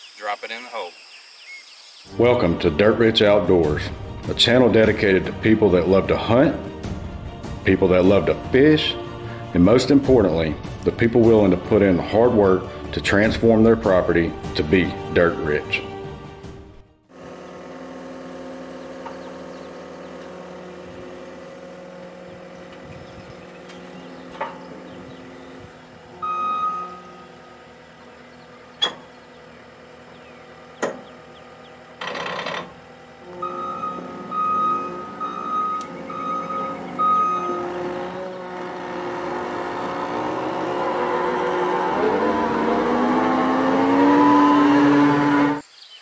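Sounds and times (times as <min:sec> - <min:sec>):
loader engine running: 0:02.1 - 0:45.6
backup alarm beeps: 0:26.2 - 0:27.4, 0:33.4 - 0:37.6
sharp clicks: 0:35.8 - 0:36.0.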